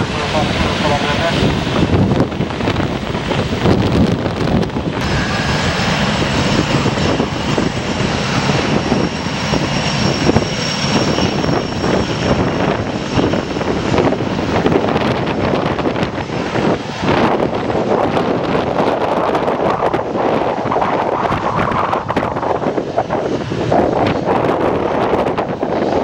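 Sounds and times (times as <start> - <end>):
high jet whine: 0.0 - 26.0
jet engine roar: 0.0 - 26.0.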